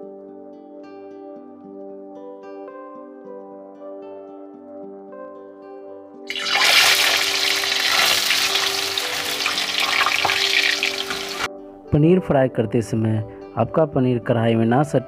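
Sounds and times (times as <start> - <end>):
soft background music: 0.0 - 15.0
deep-frying sizzle: 6.3 - 11.5.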